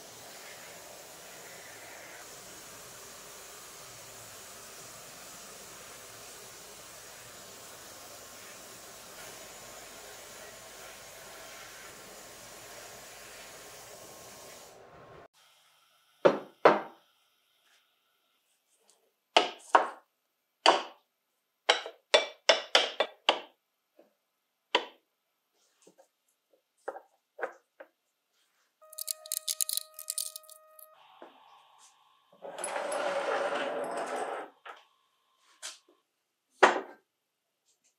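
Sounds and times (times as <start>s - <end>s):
sandblast nozzle hissing: 0.0s - 14.8s
small metal parts rattling: 28.9s - 30.6s.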